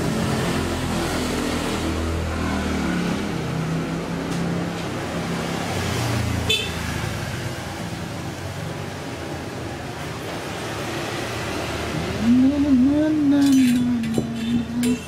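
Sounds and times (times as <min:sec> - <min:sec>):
passing road traffic: 0:00.0 - 0:15.0
vehicle horn toot: 0:06.5 - 0:06.8.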